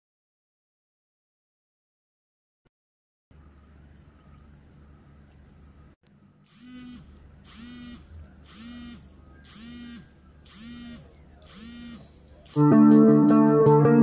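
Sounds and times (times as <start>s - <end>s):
faint low hum: 3.3s - 12.6s
alarm tones: 6.6s - 12.6s.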